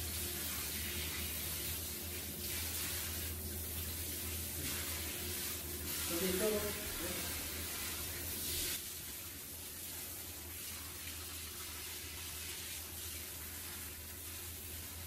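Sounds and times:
water spraying from shower head: 0.0 - 8.8.

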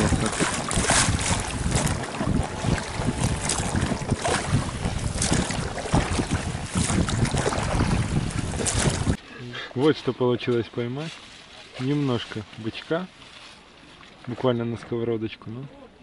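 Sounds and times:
wind gusting on microphone: 0.0 - 9.2
choppy sea water washing: 0.0 - 15.1.

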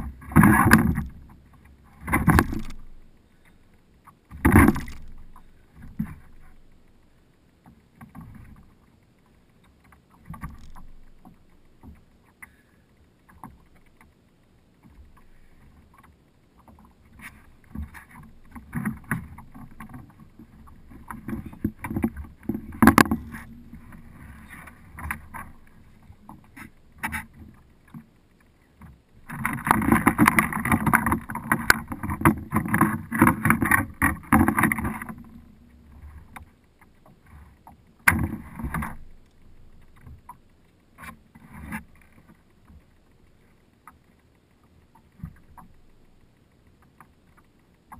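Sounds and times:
knocks and rubbing on kayak hull: 0.0 - 3.0, 4.2 - 6.7, 14.9 - 28.1, 28.8 - 40.4.

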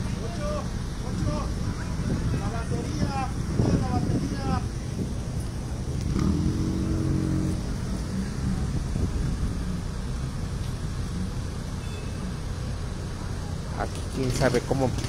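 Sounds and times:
low traffic rumble: 0.0 - 15.0
vehicle engine passing close: 4.8 - 15.0.

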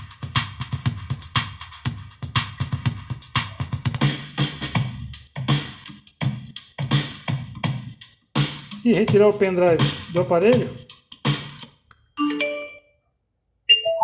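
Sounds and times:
electronic music with drum-machine beat: 0.0 - 11.8.

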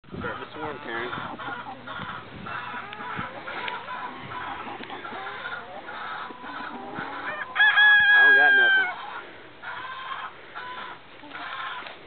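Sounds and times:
hens clucking: 0.1 - 12.0.

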